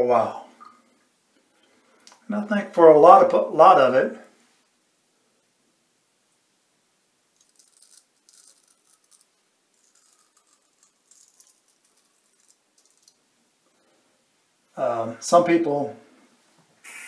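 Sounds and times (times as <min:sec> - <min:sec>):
razor scraping stubble: 0:07.4 - 0:13.1.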